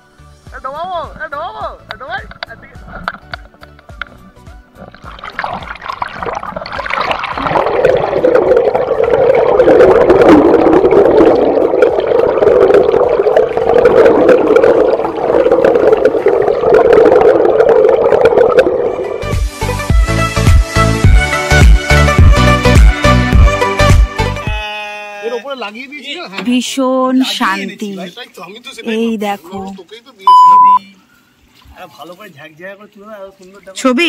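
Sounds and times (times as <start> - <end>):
muffled underwater river rushing: 4.7 - 19.4.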